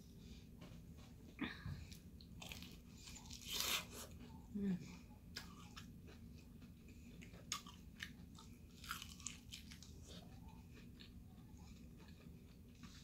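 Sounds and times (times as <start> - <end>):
crunching fried chicken: 5.3 - 13.0.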